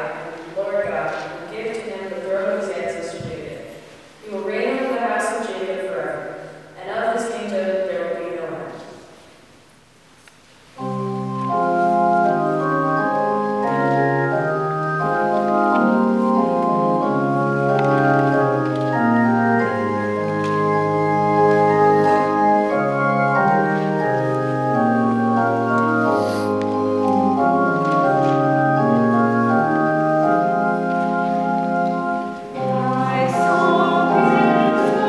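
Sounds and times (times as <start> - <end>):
organ playing held chords: 10.8 - 35.0.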